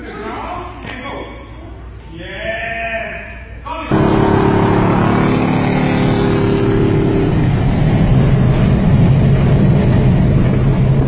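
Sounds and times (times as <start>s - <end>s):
car engine drone: 3.9s - 11.0s
road noise: 3.9s - 11.0s.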